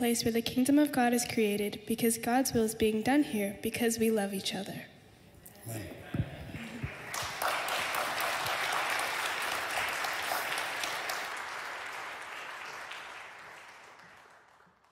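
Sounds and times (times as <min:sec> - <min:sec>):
congregation applauding: 0:06.3 - 0:14.9.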